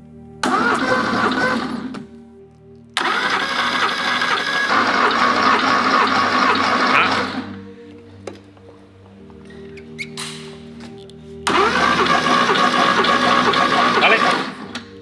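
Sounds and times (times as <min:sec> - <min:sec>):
starter motor cranking engine: 0:00.4 - 0:02.0, 0:03.0 - 0:07.6, 0:11.5 - 0:14.9.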